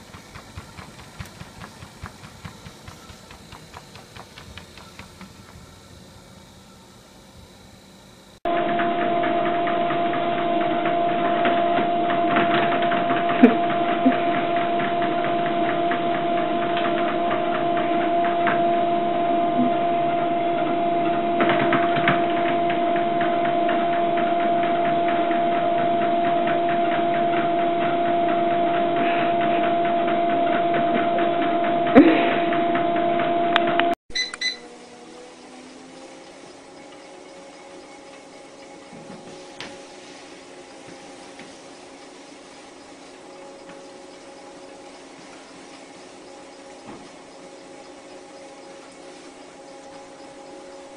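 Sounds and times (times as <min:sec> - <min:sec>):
knocks on treadmill: 0:00.0 - 0:05.6
treadmill belt rumble: 0:00.0 - 0:06.5, 0:08.5 - 0:34.0
treadmill motor whine: 0:00.0 - 0:50.9.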